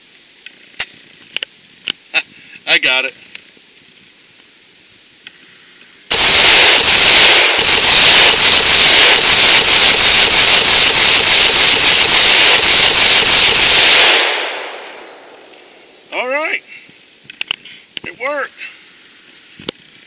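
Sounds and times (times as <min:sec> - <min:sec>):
rapid rifle gunshots: 0:06.1 - 0:15.4.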